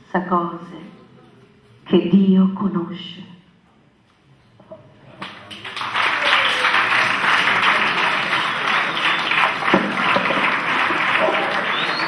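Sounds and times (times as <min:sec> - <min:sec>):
roomful of people applauding: 0:05.2 - 0:12.0.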